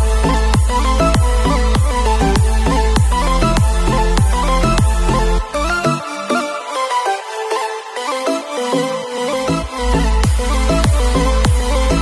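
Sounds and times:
deep kick drum: 0.0 - 5.2, 10.2 - 12.0
heavy bass: 0.0 - 6.0, 9.3 - 12.0.

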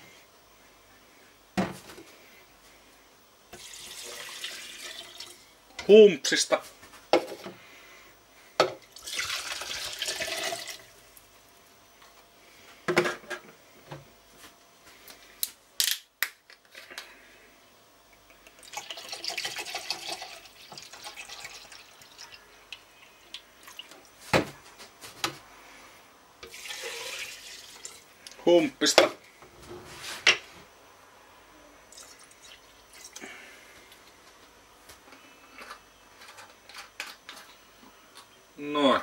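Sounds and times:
liquid pouring into glass: 3.6 - 5.4, 9.0 - 10.8, 18.5 - 22.4, 26.5 - 28.0, 31.9 - 33.2.

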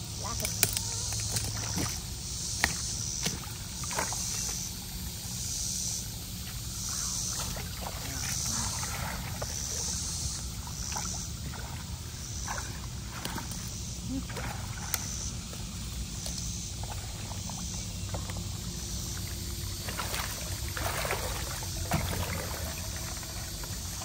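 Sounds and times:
water splashing and sloshing: 0.0 - 24.0
stream rushing: 17.9 - 24.0.

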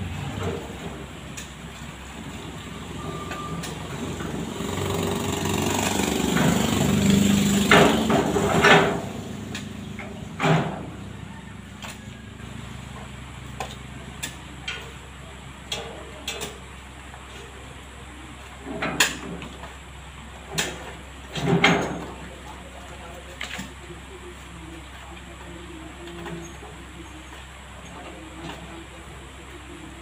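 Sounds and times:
vehicle engine: 0.0 - 30.0.

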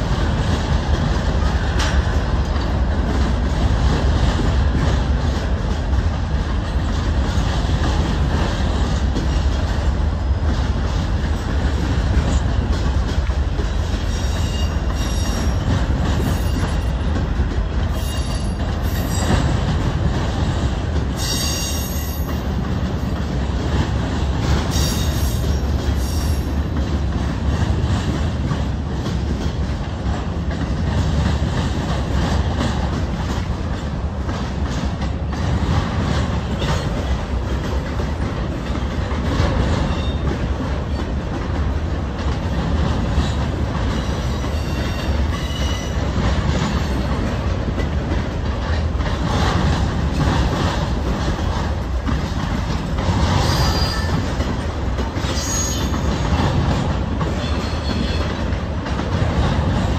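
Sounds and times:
freight train rumbling on rails: 0.0 - 59.9
high-pitched wheel squeals: 55.3 - 56.1.

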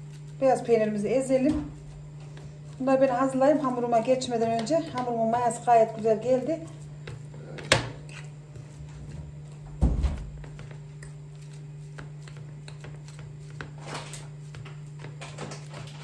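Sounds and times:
steady low hum: 0.0 - 16.0
dull thump: 9.7 - 10.4.

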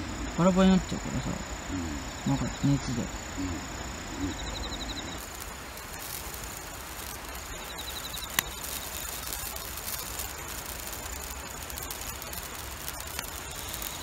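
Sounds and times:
insects trilling: 0.0 - 14.0
rapid pulsed insect chirp: 0.0 - 14.0.

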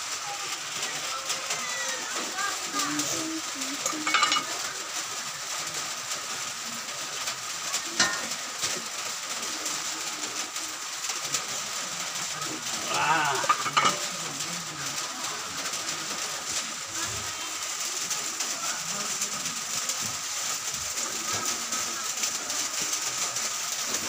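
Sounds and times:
steady hiss: 0.0 - 24.0
metal basin and cleaver clinking: 3.8 - 4.6, 8.0 - 8.4, 13.4 - 14.1.

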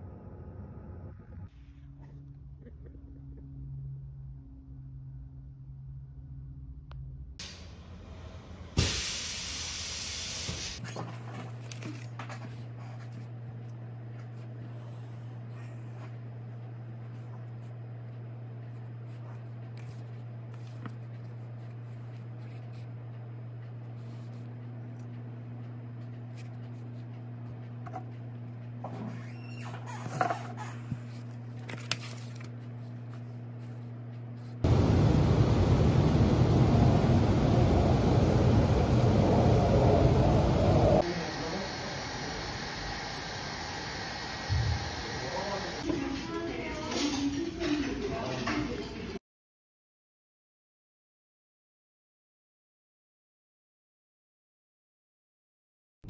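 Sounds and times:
steam hissing: 8.8 - 10.8, 34.7 - 45.8
low steady hum: 30.5 - 46.8
paper rustling: 31.0 - 33.8
steady hiss: 41.0 - 45.8.

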